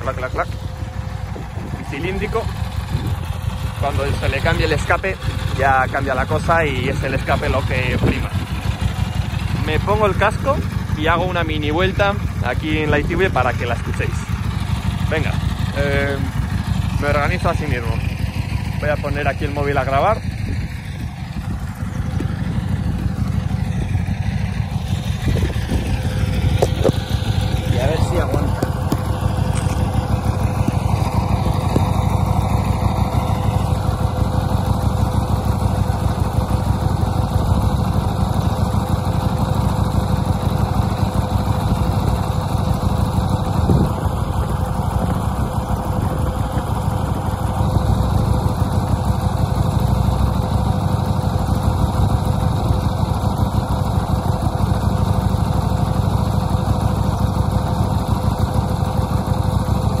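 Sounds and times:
motorcycle engine idling: 0:00.0 - 1:00.0.

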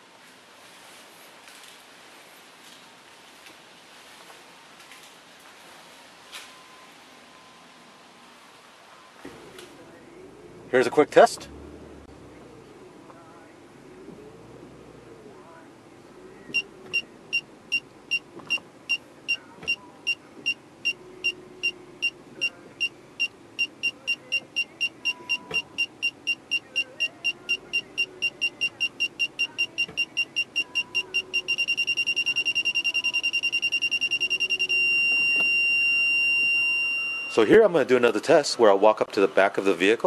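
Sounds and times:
parking sensor beeping: 0:16.5 - 0:37.6.

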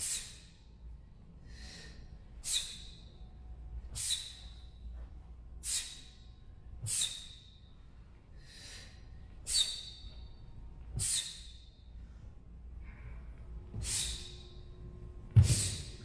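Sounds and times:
sharp hissing exhalations: 0:13.8 - 0:14.4, 0:15.4 - 0:15.9.

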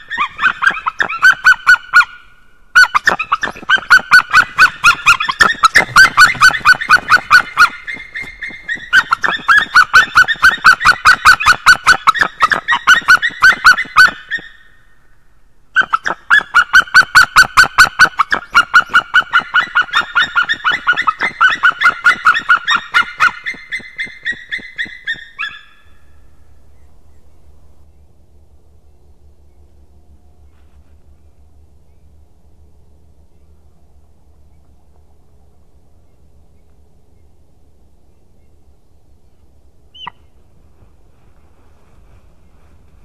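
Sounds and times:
eagles yelping calls: 0:00.0 - 0:14.7, 0:15.8 - 0:25.8.

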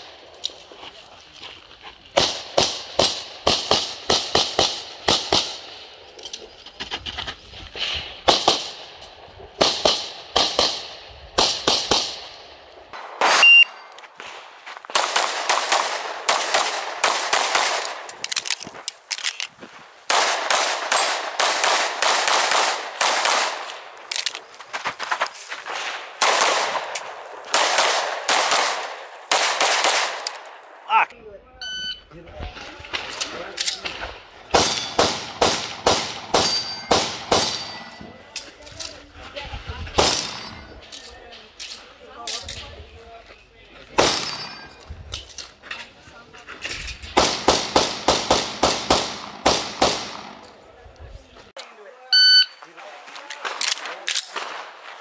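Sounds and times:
handgun shots echoing: 0:26.2 - 0:30.7, 0:34.5 - 0:38.0, 0:44.0 - 0:44.8.

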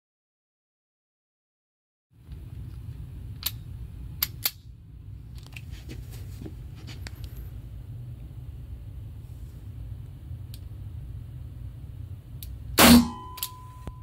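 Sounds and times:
ventilation humming: 0:02.2 - 0:14.0.

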